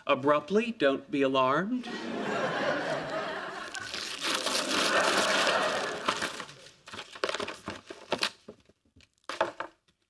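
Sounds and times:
wrapping paper tearing: 3.6s - 8.5s
paper and cardboard crackles: 3.6s - 9.7s.

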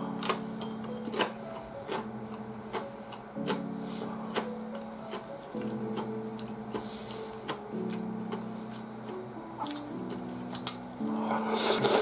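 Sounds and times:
soft background music chords: 0.0s - 12.0s.

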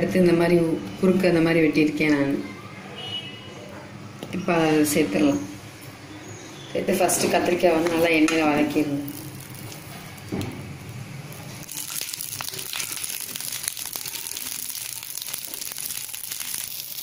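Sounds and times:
vegetables sizzling in oil: 8.7s - 17.0s.

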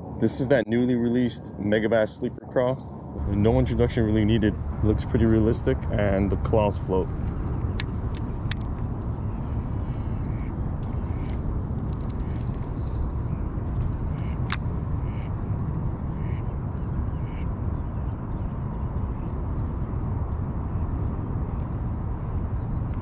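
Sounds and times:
low rumble: 1.0s - 23.0s
ducks quacking: 9.8s - 10.5s, 14.1s - 15.3s, 16.2s - 16.5s.

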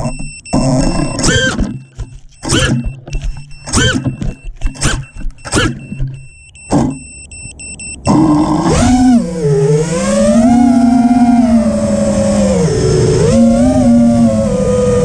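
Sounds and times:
quadcopter motors whirring: 8.1s - 15.0s.

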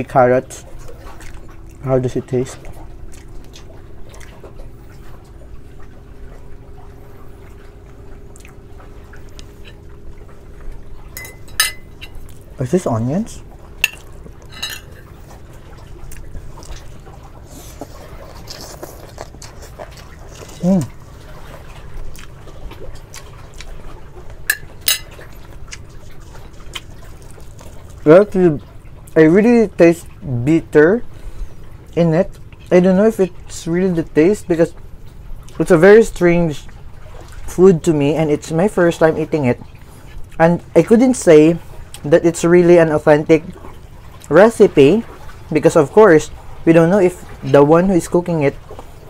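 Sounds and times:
low background hum: 0.0s - 49.0s
chewing with wet mouth sounds: 0.5s - 12.6s, 13.4s - 29.2s, 30.0s - 37.6s, 38.5s - 49.0s
person chewing: 16.0s - 28.0s.

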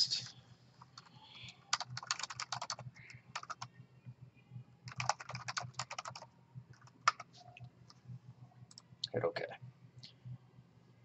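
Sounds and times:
faint low hum: 0.0s - 11.0s
computer keyboard typing: 0.9s - 3.7s, 4.9s - 7.3s.

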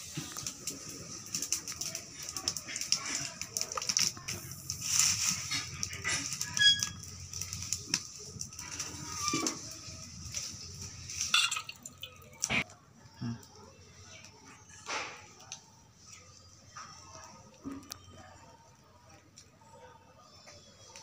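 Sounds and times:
dry leaves rustling: 0.0s - 12.4s
leaf fire crackling: 0.0s - 19.8s.

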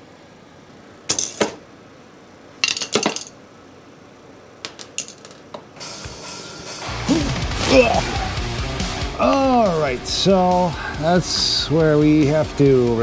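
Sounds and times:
metal tools clinking on concrete: 1.1s - 1.6s, 2.6s - 3.4s, 4.7s - 5.6s.

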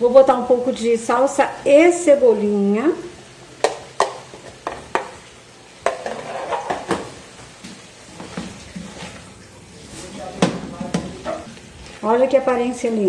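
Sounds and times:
spatula knocking on pot: 3.6s - 5.2s, 10.4s - 11.5s
stirring food in pot: 3.6s - 13.0s.

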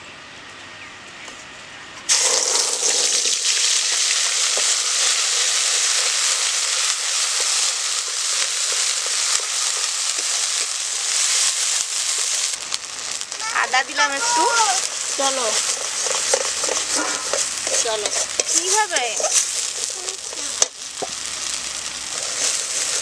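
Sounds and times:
paste sizzling in hot oil: 2.1s - 23.0s
metal spatula stirring: 14.8s - 21.2s.

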